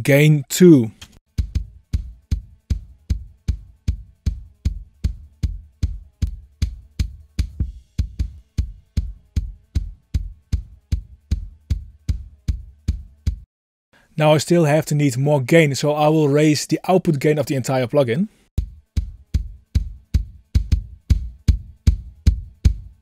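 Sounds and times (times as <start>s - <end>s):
bass drum beat: 1.3s - 13.5s, 18.6s - 23.0s.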